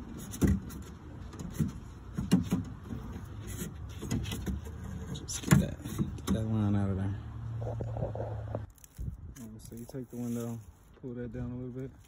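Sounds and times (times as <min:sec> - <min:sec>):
car door frame knocks and rattles: 0:00.3 - 0:03.2.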